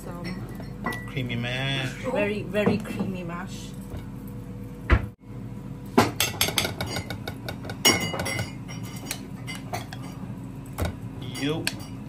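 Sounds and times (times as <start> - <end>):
spoon clinking against dishes: 6.2 - 10.2.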